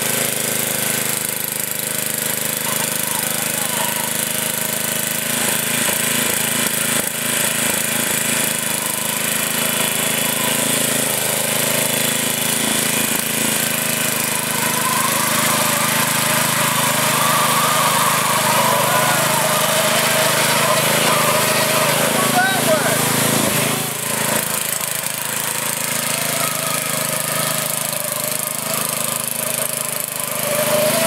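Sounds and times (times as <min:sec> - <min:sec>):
lawn mower engine running: 0:00.0 - 0:31.0.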